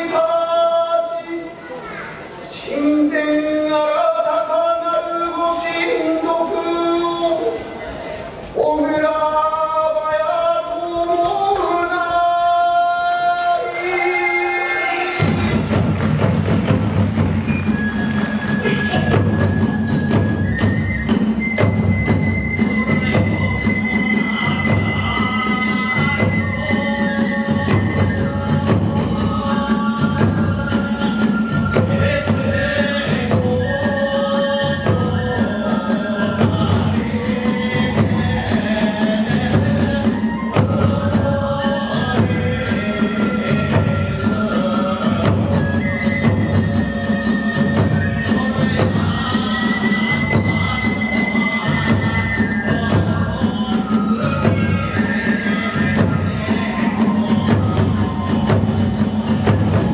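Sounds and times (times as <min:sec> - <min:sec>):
bamboo flute melody: 0:10.3 - 0:59.9
big drum beat: 0:15.1 - 0:59.9.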